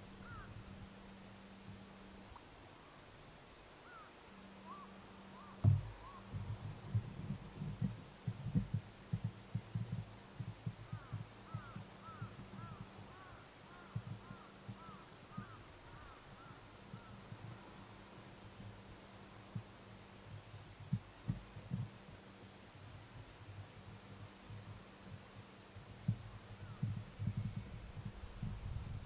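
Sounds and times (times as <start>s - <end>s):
bird calls: 0.0s - 0.6s, 3.8s - 6.7s, 10.6s - 17.8s, 26.2s - 28.1s
faint low hum: 0.0s - 29.0s
low thumps and knocks: 5.6s - 13.0s.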